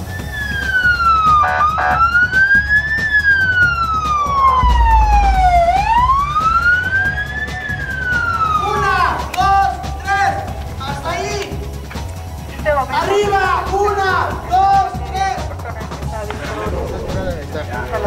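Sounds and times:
emergency siren wailing: 0.3s - 9.3s
short siren blasts: 4.6s - 8.6s.

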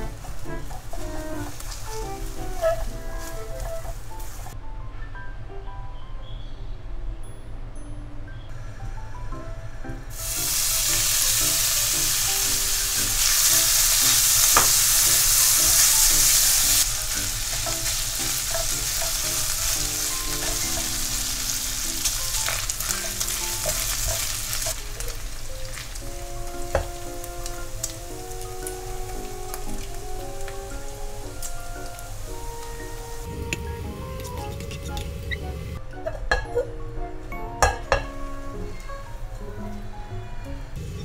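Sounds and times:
bacon sizzling in hot oil: 0.0s - 4.6s, 10.1s - 33.3s.

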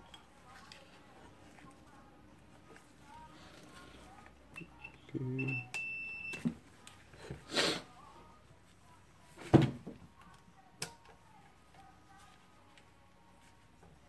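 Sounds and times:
multimeter beeping: 4.5s - 6.5s.

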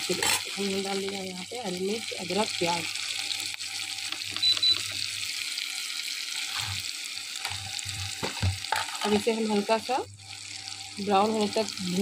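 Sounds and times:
onions sizzling in oil: 0.0s - 12.0s
spatula knocking and scraping pan: 0.1s - 0.6s, 6.4s - 6.8s, 7.4s - 9.3s.

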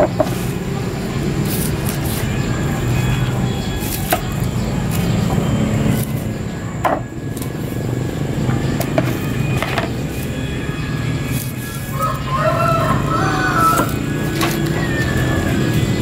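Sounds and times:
steady low drone: 0.0s - 16.0s
knife knocking on wooden block: 6.8s - 7.1s.

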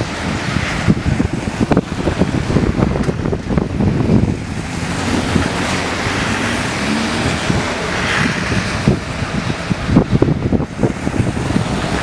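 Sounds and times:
tyres hissing on wet road: 0.0s - 12.0s
wind buffeting microphone: 0.0s - 12.0s.

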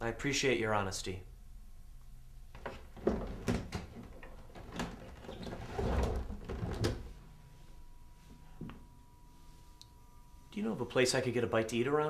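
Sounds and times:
books knocking and rustling: 2.6s - 7.0s.

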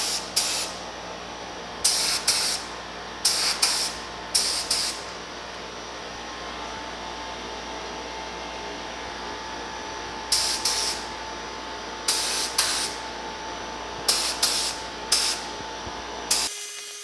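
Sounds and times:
paint spray gun hissing: 0.0s - 0.8s, 1.8s - 5.1s, 10.3s - 11.1s, 12.1s - 13.0s, 14.1s - 15.5s, 16.3s - 17.0s.

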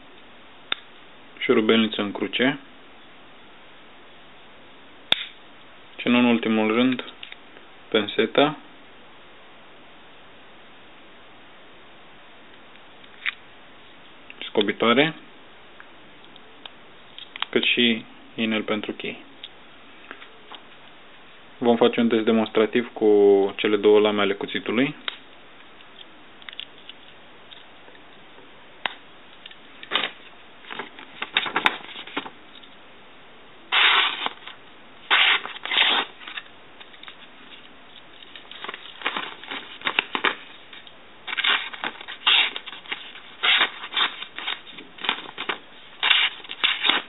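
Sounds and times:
knife blade cutting paper: 33.7s - 34.4s, 35.1s - 36.4s, 41.3s - 47.0s.

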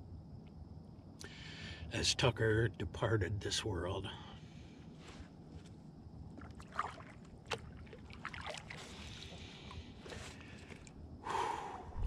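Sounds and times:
paddle splashing water: 6.4s - 10.8s.

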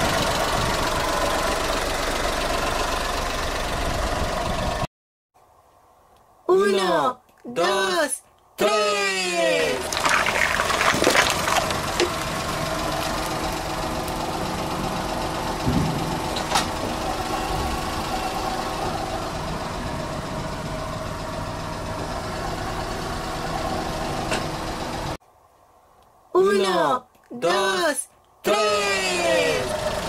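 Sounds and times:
car engine idling: 0.0s - 4.8s, 9.6s - 25.2s, 28.8s - 30.0s
plastic bottles crunching: 9.8s - 13.4s.

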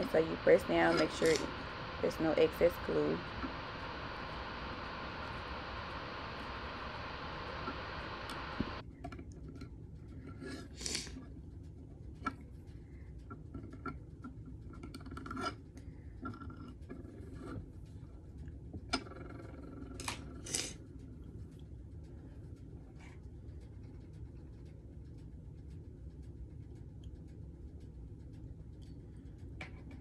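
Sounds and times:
steady hiss: 0.0s - 8.8s.

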